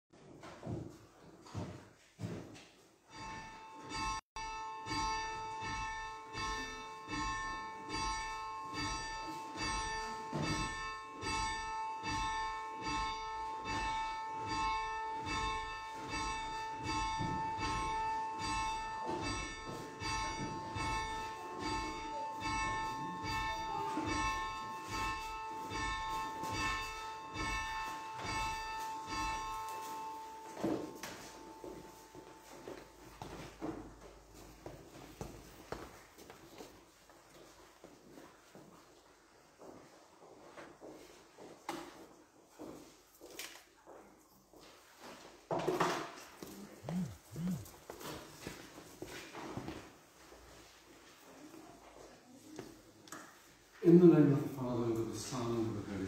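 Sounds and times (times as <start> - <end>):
church bell ringing: 3.1 - 35.8.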